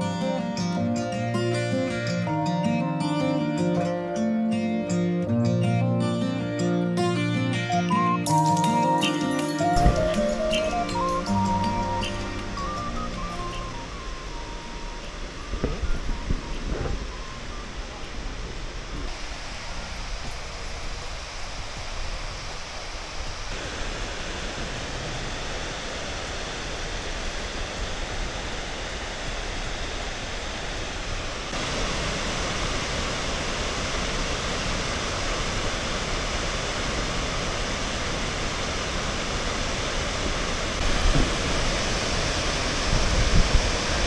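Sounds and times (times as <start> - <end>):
waterfall rushing: 8.3 - 44.0
wind buffeting microphone: 9.7 - 44.0.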